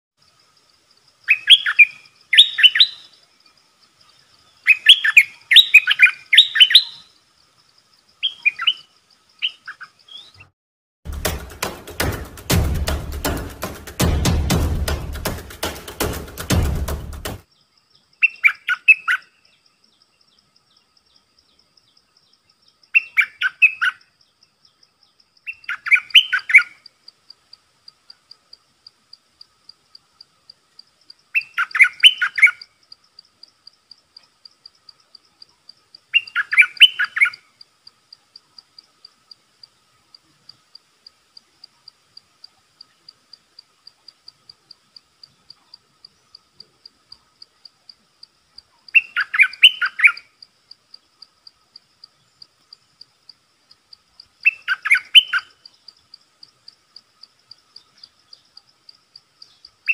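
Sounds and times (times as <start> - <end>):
bird singing bubbly phrases: 1.2 - 3.2, 4.1 - 7.2, 25.5 - 26.8, 31.3 - 32.6, 36.1 - 37.5, 48.8 - 50.3, 54.4 - 55.7
faint high ticking: 24.0 - 59.9.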